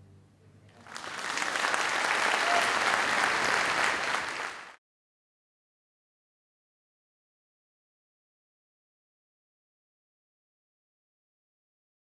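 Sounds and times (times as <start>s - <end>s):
audience applauding: 0.8s - 4.8s.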